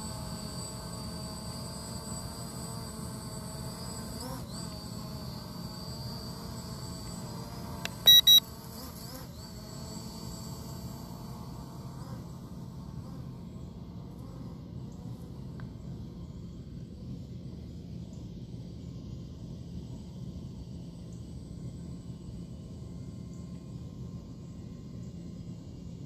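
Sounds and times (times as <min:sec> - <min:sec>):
drone motors whining: 0:03.0 - 0:08.4
short electronic beeps: 0:07.9 - 0:08.4.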